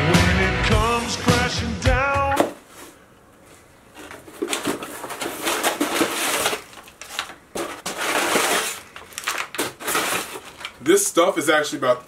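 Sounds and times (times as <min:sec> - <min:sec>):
packing paper crinkling: 0:03.9 - 0:12.0.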